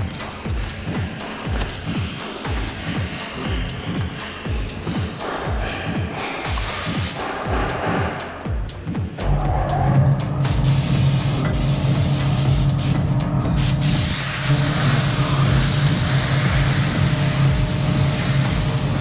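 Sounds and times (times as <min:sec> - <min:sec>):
steady low hum: 0:00.0 - 0:19.0
paint spray gun hissing: 0:06.5 - 0:07.4, 0:10.4 - 0:13.0, 0:13.6 - 0:19.0.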